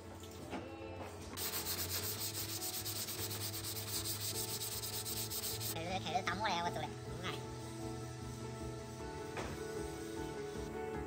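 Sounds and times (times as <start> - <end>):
sandpaper scraping: 1.4 - 5.8.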